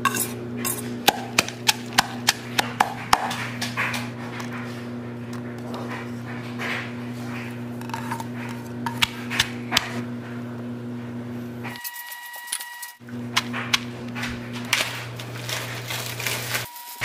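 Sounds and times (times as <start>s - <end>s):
steady low hum: 0.0s - 11.8s
pestle knocking in stone mortar: 0.7s - 3.4s.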